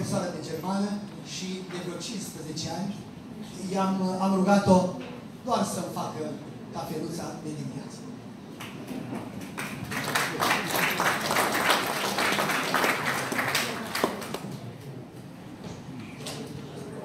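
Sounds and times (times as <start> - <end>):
audience applauding: 9.4 - 14.6.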